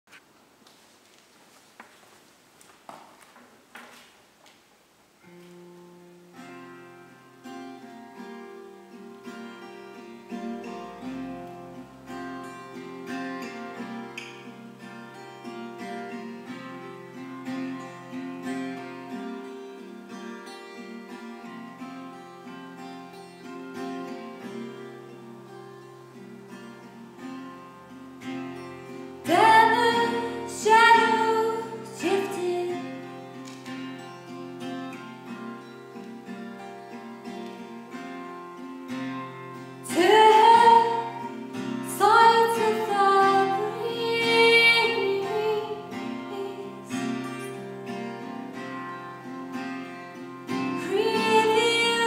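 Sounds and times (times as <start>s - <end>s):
acoustic guitar: 0.1s - 52.0s
woman singing: 29.2s - 33.1s, 39.8s - 47.6s, 50.6s - 52.0s.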